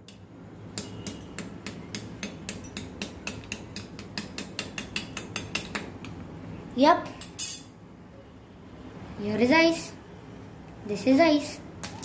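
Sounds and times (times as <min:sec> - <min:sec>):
metal spoon tapping ice: 0:00.8 - 0:06.2.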